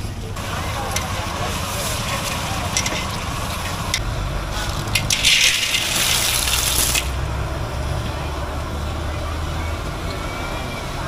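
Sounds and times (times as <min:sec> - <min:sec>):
spatulas clinking against a wok: 0:02.3 - 0:04.0
steady sizzle: 0:04.6 - 0:07.2
clams clattering into a wok: 0:04.7 - 0:07.1.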